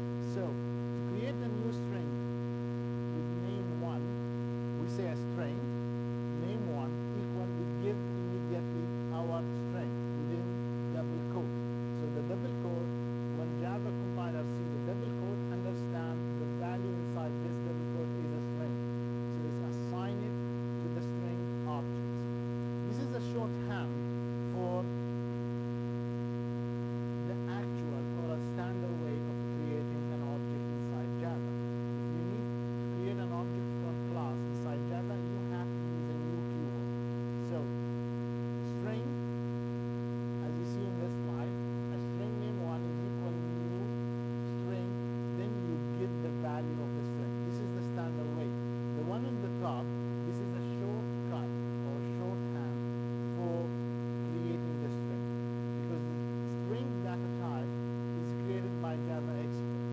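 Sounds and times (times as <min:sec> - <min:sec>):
electrical mains hum: 0:00.0 - 0:59.9.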